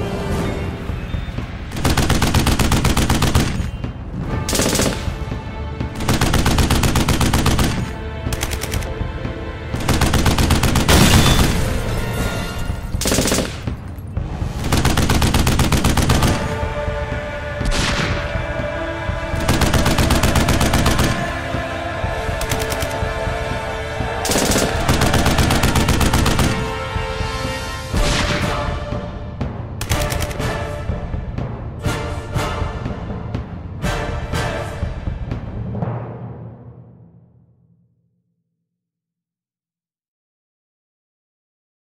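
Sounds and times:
background music: 0:00.0 - 0:38.0
machine-gun fire: 0:01.7 - 0:03.8, 0:04.4 - 0:05.2, 0:06.0 - 0:08.9, 0:09.8 - 0:11.8, 0:13.0 - 0:13.8, 0:14.5 - 0:16.6, 0:19.3 - 0:21.3, 0:24.2 - 0:26.8, 0:29.8 - 0:30.4.

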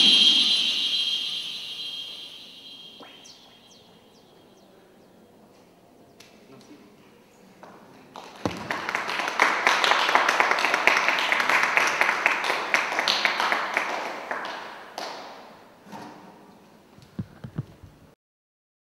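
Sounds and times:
audience applauding: 0:08.2 - 0:15.2.

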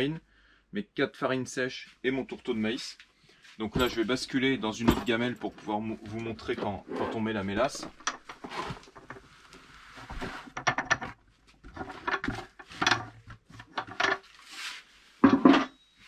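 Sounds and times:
bucket knocking and clattering: 0:15.2 - 0:15.7.

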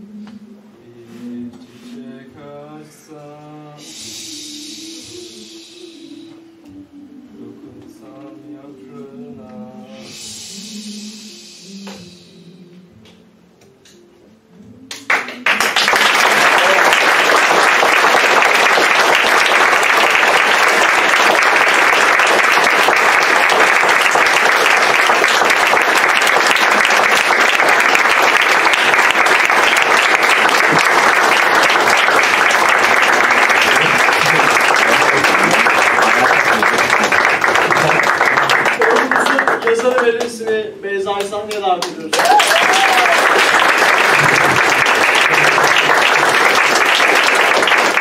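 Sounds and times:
audience applause: 0:15.1 - 0:40.3, 0:42.1 - 0:48.0.

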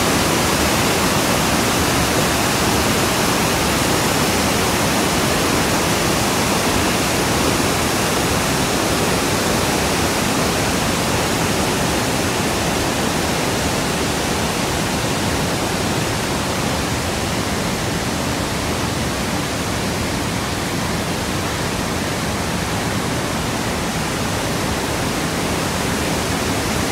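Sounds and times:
waterfall rushing: 0:00.0 - 0:26.9.

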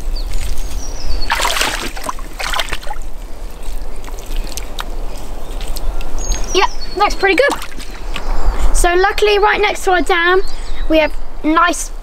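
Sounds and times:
water sloshing and splashing: 0:00.3 - 0:05.9, 0:07.2 - 0:08.2.

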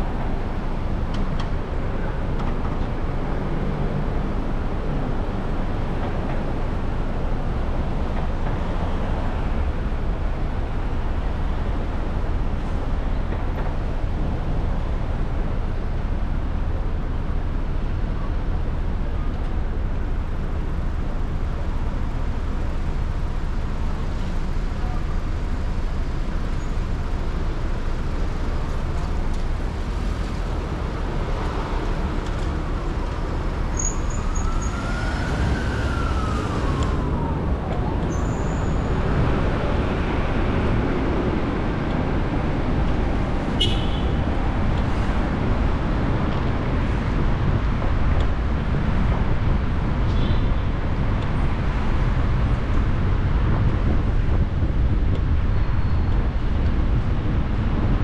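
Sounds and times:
city traffic rumble: 0:00.0 - 0:58.0
brief high squeaks: 0:33.8 - 0:34.7
emergency siren wailing: 0:34.0 - 0:39.0.

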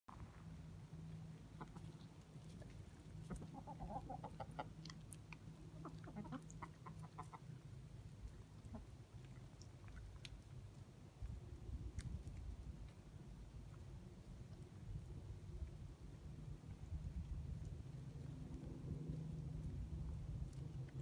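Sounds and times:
faint steady low hum: 0:00.1 - 0:21.0
chickens clucking softly: 0:01.4 - 0:13.0.

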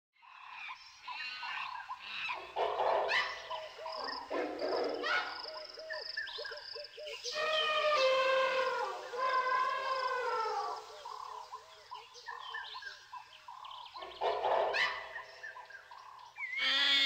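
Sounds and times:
animal and bird calls: 0:00.2 - 0:17.0
long wavering animal call: 0:07.1 - 0:11.6.

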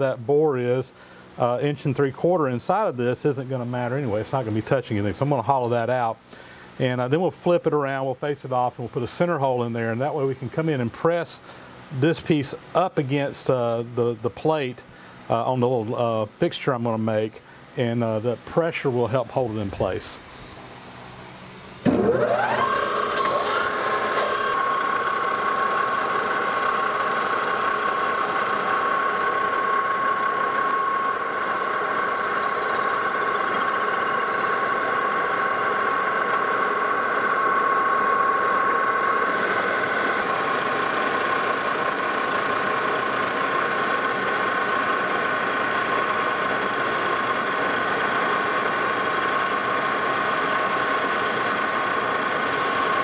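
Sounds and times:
metal lathe whining: 0:21.8 - 0:53.0.

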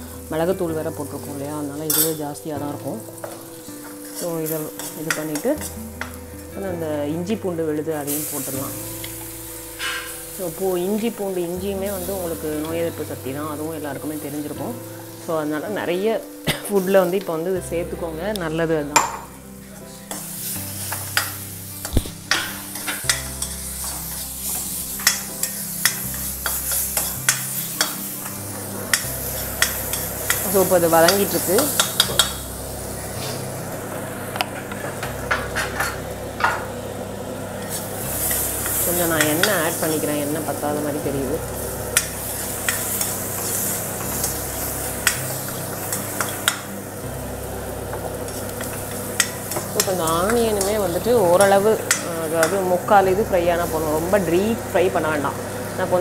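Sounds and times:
paste sizzling in hot oil: 0:00.0 - 0:06.8, 0:07.8 - 0:56.0
metal spoon stirring: 0:01.9 - 0:02.2, 0:22.3 - 0:32.5
metal ladle scraping a pan: 0:09.0 - 0:10.4, 0:20.1 - 0:32.5.

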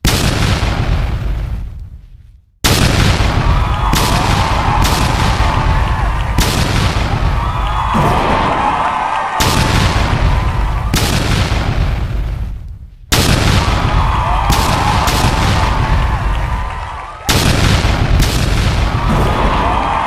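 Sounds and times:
fireworks bursting: 0:00.0 - 0:20.0
falling firework whistles: 0:03.2 - 0:11.2.

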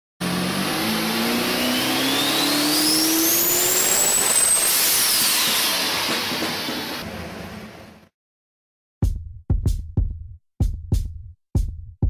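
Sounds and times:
car engine accelerating hard: 0:00.2 - 0:08.0
high whine: 0:00.2 - 0:08.0.

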